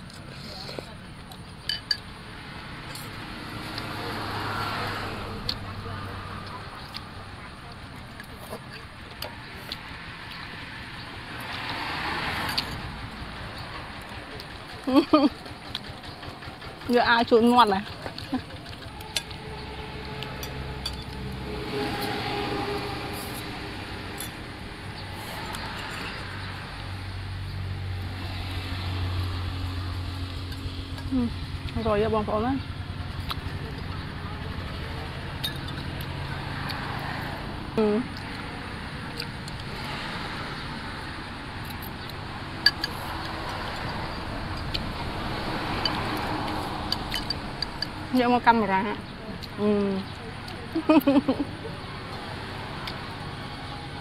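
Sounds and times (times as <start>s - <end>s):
steady background noise: 0.0s - 54.0s
vehicle engine drone: 0.0s - 54.0s
cutlery clinking on ceramic bowls: 1.7s - 2.0s
spoons and forks clinking on bowls: 1.7s - 2.0s, 20.3s - 21.2s, 46.9s - 47.4s.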